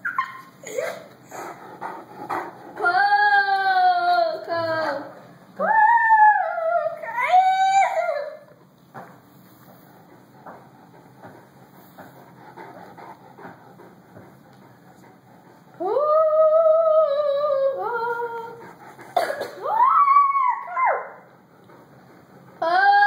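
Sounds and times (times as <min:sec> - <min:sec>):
long howls: 0:05.6 - 0:08.4, 0:15.8 - 0:18.8, 0:19.6 - 0:21.3.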